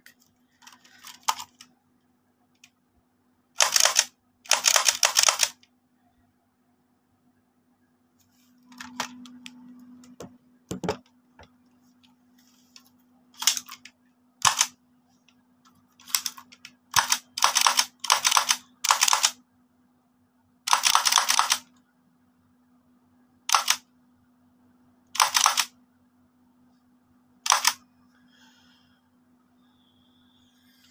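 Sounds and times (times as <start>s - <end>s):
toy blaster mechanism bursts: 3.6s - 5.6s, 14.4s - 14.7s, 16.0s - 19.4s, 20.7s - 21.6s, 23.5s - 23.8s, 25.2s - 25.7s, 27.4s - 27.8s.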